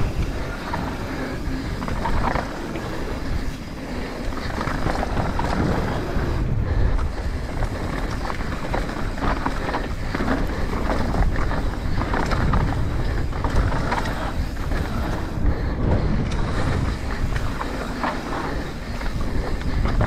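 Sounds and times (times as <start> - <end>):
bike rattling over bumps: 0.0 - 20.0
tyres rolling on dirt: 0.0 - 20.0
wind buffeting camera: 0.0 - 20.0.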